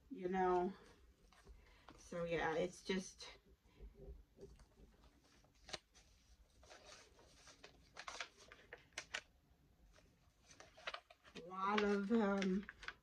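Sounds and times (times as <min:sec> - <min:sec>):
paper pages turning: 0:04.5 - 0:09.3, 0:09.9 - 0:13.0.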